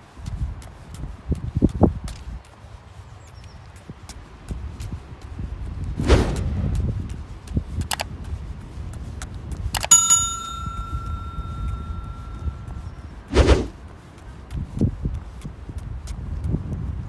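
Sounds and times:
light clicks: 7.8s - 8.1s
bright bell ding: 9.8s - 12.8s.

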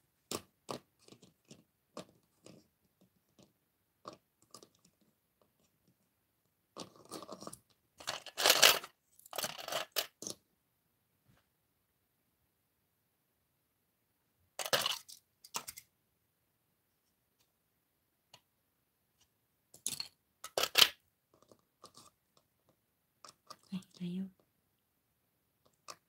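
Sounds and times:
clatter of small hard objects: 6.8s - 10.4s, 14.6s - 15.9s, 19.7s - 22.2s.

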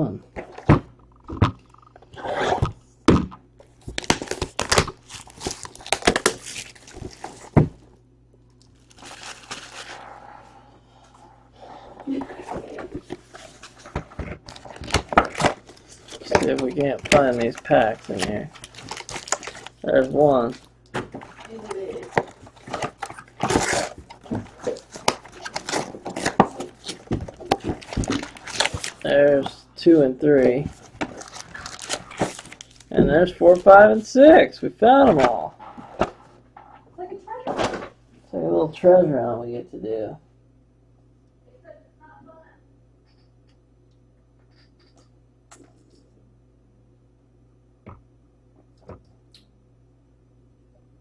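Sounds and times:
wrapping crackling: 3.8s - 7.9s, 8.5s - 10.4s, 12.7s - 29.6s, 30.4s - 33.8s
crinkling rustle: 8.5s - 10.1s, 12.5s - 29.6s, 30.4s - 33.7s.

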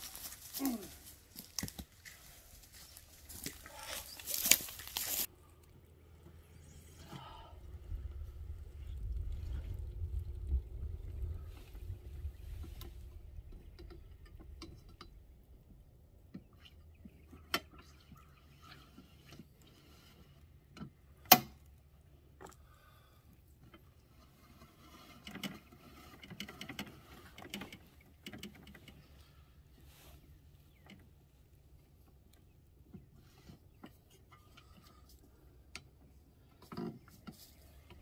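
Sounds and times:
clothes rustling: 0.0s - 5.3s
wind rumble on microphone: 7.5s - 15.8s.

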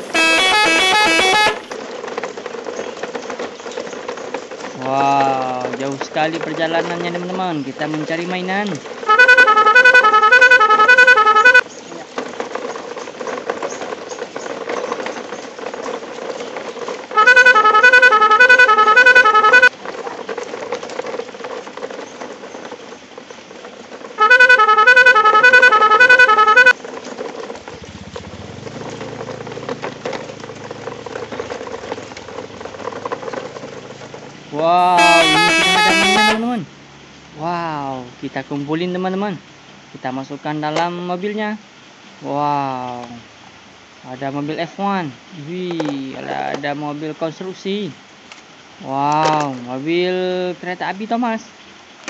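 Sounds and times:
two-tone vehicle horn blasts: 0.0s - 1.8s, 9.1s - 11.6s, 17.1s - 19.7s, 24.2s - 26.8s, 34.8s - 36.6s.

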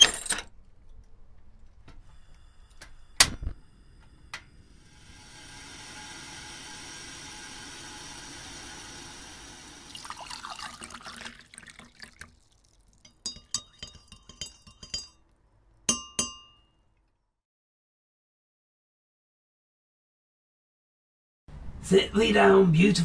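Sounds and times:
steady hiss: 4.4s - 10.0s
glass clinking: 9.9s - 15.2s, 15.9s - 16.8s.

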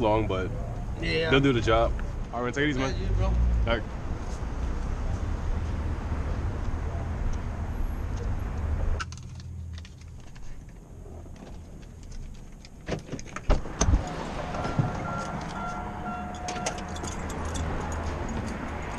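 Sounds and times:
traffic rumble: 0.0s - 18.9s
car door and keys clicking: 9.0s - 18.9s.

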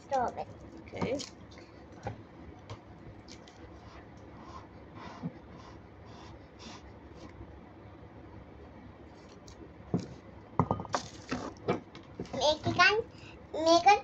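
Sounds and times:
spoon knocking against tub: 10.0s - 12.4s.

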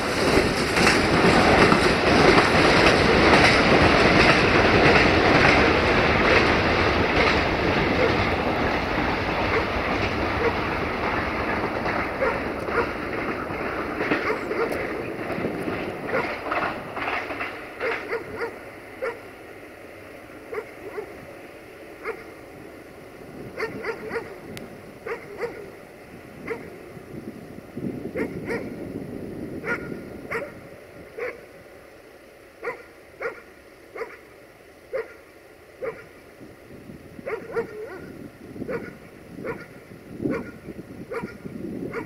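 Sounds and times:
dog barking: 9.5s - 9.7s, 10.4s - 10.6s, 12.2s - 13.0s, 14.2s - 14.8s, 17.8s - 19.2s, 20.5s - 21.2s, 22.0s - 22.3s, 23.6s - 24.4s, 25.0s - 25.7s, 26.4s - 26.7s, 28.2s - 28.7s, 29.6s - 30.6s, 31.2s - 31.4s, 32.6s - 34.2s, 34.9s - 35.2s, 35.8s - 36.1s, 37.2s - 38.1s, 38.7s - 39.7s, 40.3s - 42.0s.

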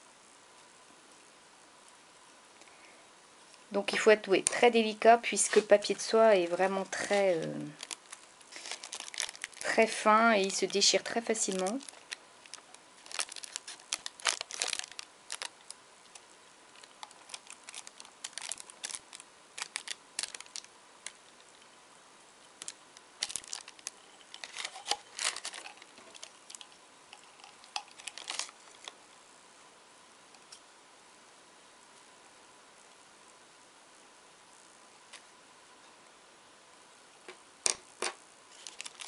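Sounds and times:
tissue paper crinkling: 5.3s - 21.2s, 22.6s - 29.0s, 38.5s - 39.0s.

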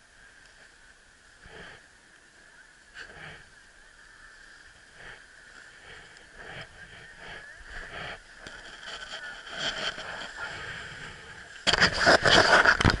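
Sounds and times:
rough crackling rustle: 0.0s - 13.0s
skis scraping over snow: 4.6s - 13.0s.

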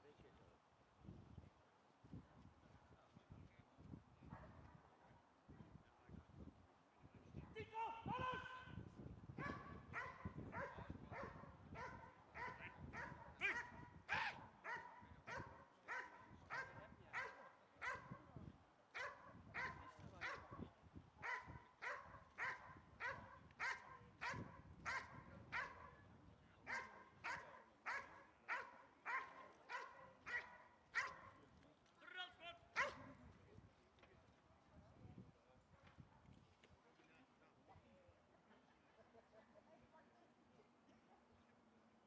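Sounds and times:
dog barking: 9.4s - 18.2s, 18.9s - 20.6s, 21.2s - 26.0s, 26.7s - 31.4s, 32.8s - 33.1s.

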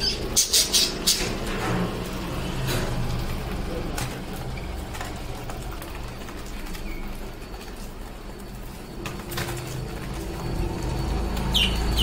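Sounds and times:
budgerigars chirping: 0.0s - 1.4s, 11.5s - 12.0s.

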